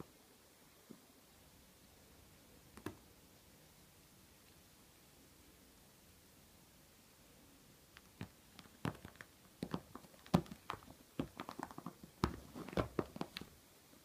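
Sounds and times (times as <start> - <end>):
hand rubbing cat's fleece jumper: 9.8 - 13.5.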